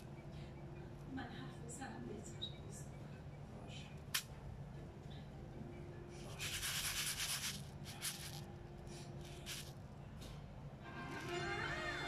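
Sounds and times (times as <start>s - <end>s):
rhinestones swishing in plastic tub: 6.2s - 8.5s, 9.2s - 9.8s.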